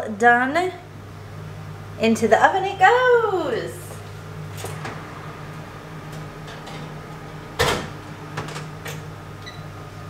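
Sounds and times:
low steady hum: 0.0s - 10.0s
oven door shutting with a clunk: 4.5s - 5.1s, 6.1s - 9.7s.

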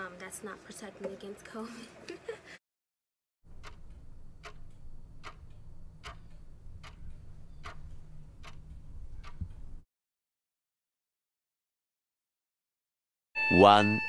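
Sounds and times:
clock ticking: 3.5s - 9.6s.

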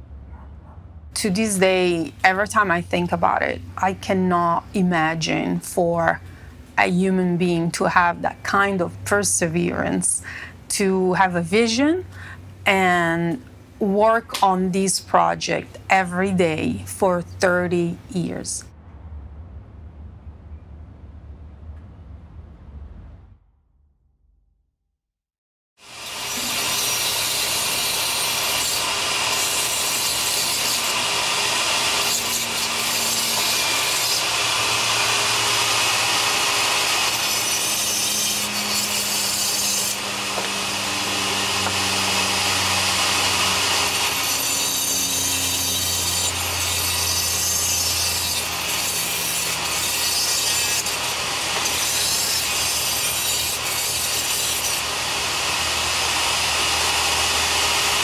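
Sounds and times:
rotary tool grinding plaster: 25.8s - 58.0s.

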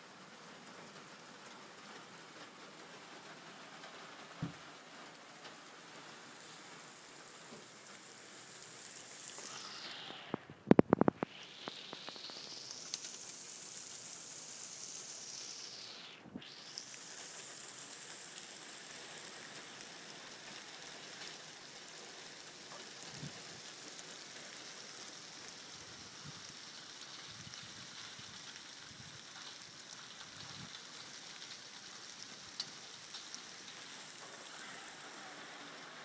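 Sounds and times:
heavy rain falling: 0.0s - 36.0s
faint ticks: 8.9s - 13.4s, 16.6s - 36.0s.

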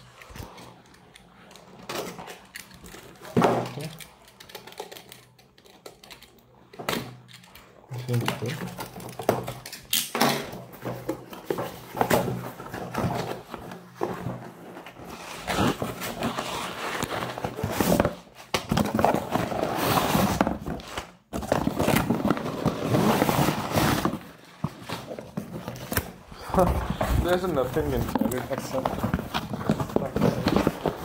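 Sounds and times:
paper rustling and crinkling: 10.6s - 31.0s.

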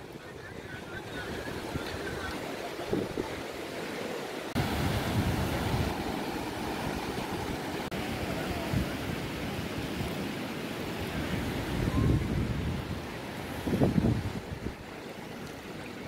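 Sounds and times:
wind buffeting microphone: 0.0s - 3.6s, 4.6s - 10.2s, 11.0s - 15.0s
sea surf hissing: 0.0s - 16.0s.

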